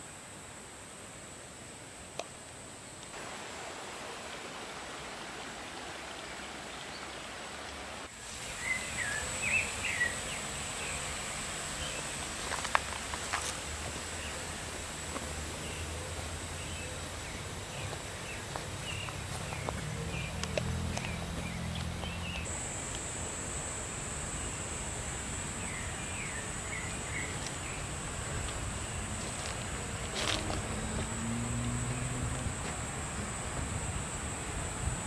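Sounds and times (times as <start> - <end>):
insect buzz: 8.0 - 35.0
birds chirping: 8.4 - 12.1, 15.2 - 22.5, 25.6 - 27.9.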